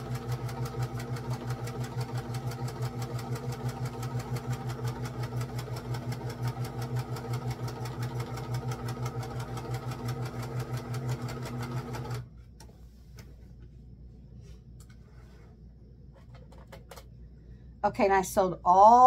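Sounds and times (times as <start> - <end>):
sewing machine running: 0.0 - 12.3.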